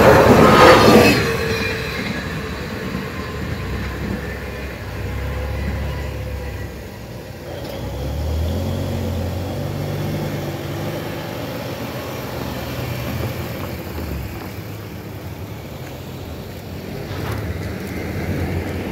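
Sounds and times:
car approaching: 0.0 - 18.9
car driving away: 3.7 - 18.9.

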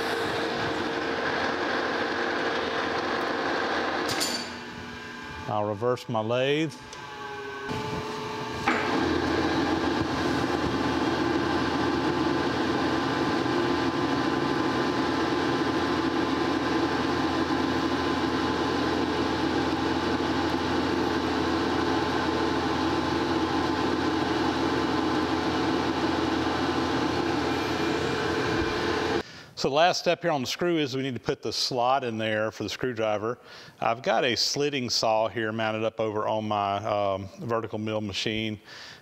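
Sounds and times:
metal lathe running: 0.0 - 29.2.

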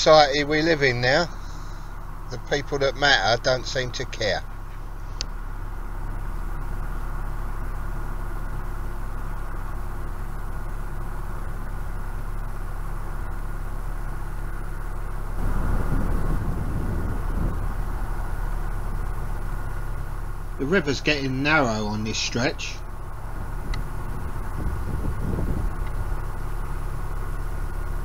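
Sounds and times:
boat engine humming: 0.0 - 28.0
rushing noise: 15.3 - 26.9.

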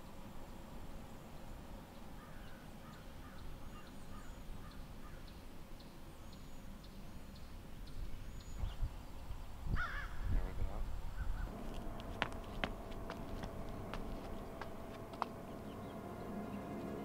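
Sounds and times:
crows cawing: 9.8 - 10.2
small birds chirping: 13.1 - 17.0.

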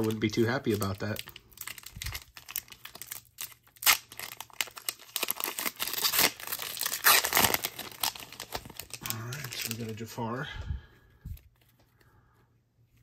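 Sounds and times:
foil wrapper crinkling: 0.0 - 10.1.

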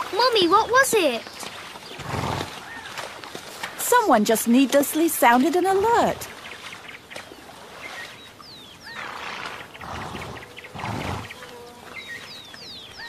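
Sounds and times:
rough breathy animal noises: 8.9 - 11.4.

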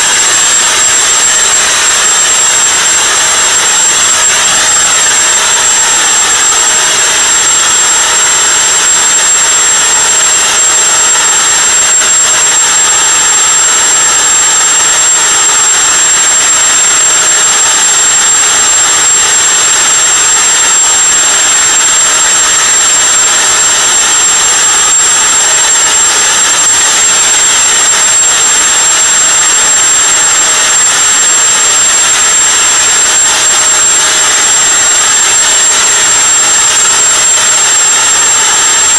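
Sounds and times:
leaf blower running: 0.0 - 24.3
high-pitched whine: 0.0 - 38.9.

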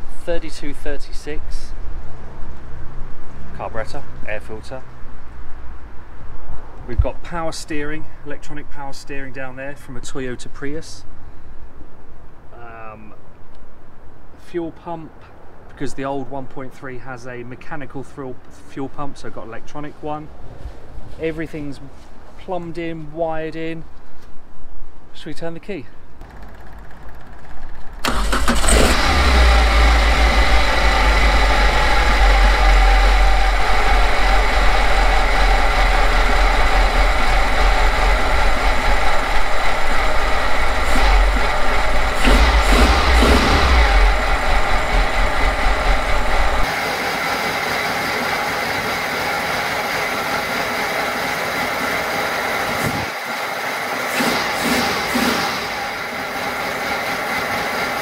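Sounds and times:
car engine starting and idling: 26.2 - 58.0
engine revving: 27.9 - 58.0.

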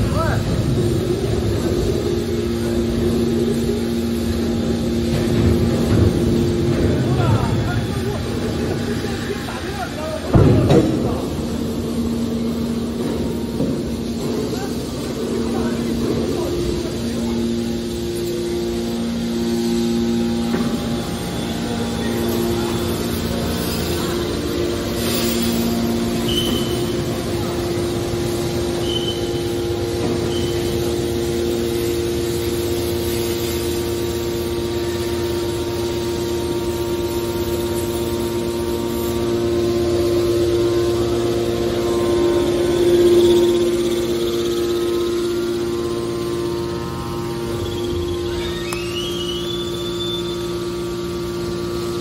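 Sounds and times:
hydraulic machine hum: 0.0 - 52.0
high-pitched chirps: 47.4 - 50.6.

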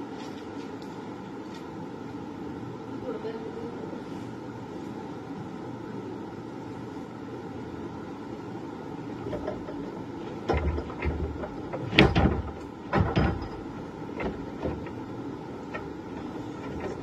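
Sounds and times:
steady background noise: 0.0 - 17.0
knocks and thuds: 9.3 - 17.0.

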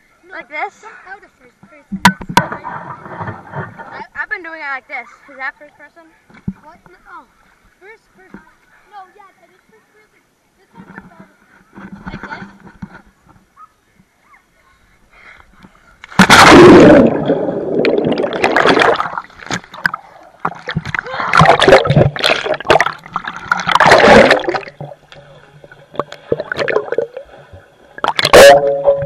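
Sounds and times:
sharp water splash: 16.1 - 25.0, 28.0 - 29.0
muffled water gurgling and splashing: 16.2 - 29.0.

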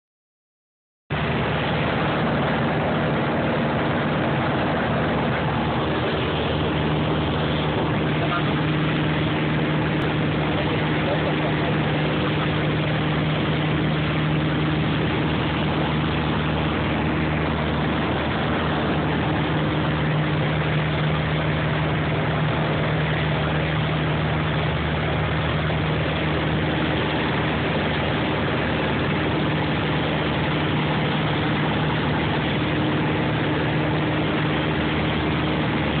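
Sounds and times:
aircraft engine drone: 1.1 - 36.0
rushing noise: 1.1 - 36.0.

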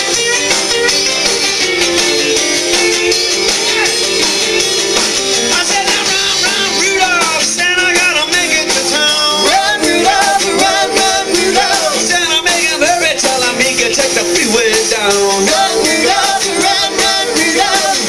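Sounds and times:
rock and roll band playing: 0.0 - 18.0
person singing: 2.9 - 4.4, 5.4 - 18.0.

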